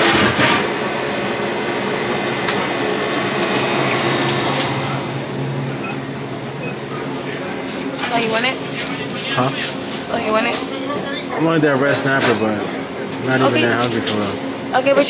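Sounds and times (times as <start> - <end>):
kitchen equipment whirring: 0.0 - 15.0.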